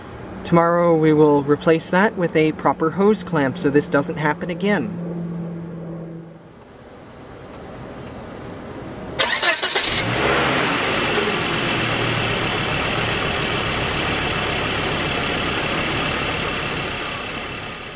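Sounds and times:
car starter cranking: 0:09.2 - 0:10.2
car engine idling: 0:09.2 - 0:17.9.

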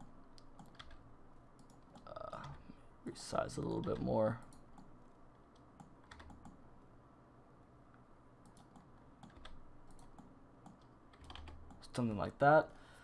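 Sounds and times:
computer keys clicking: 0:00.0 - 0:01.0, 0:01.6 - 0:02.6, 0:05.5 - 0:06.6, 0:08.4 - 0:12.0.

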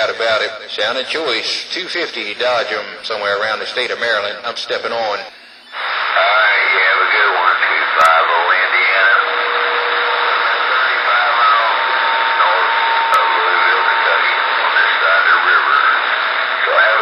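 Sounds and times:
radio static hiss: 0:00.0 - 0:17.0
faint voice over radio: 0:05.0 - 0:17.0
steady whistle tone: 0:08.6 - 0:16.2.

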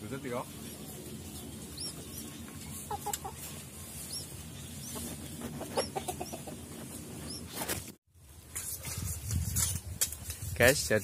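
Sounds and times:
small birds chirping: 0:00.0 - 0:07.8
hen clucking: 0:00.5 - 0:07.6.

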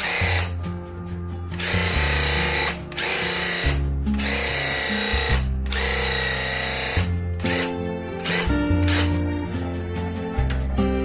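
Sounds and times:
electric paint sprayer buzzing: 0:00.0 - 0:00.5, 0:01.6 - 0:09.2
background music: 0:00.0 - 0:11.0.

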